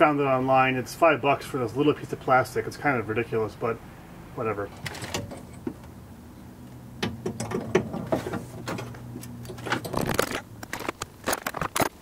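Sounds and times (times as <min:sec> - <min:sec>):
metal clatter: 0:04.7 - 0:05.8, 0:07.0 - 0:12.0.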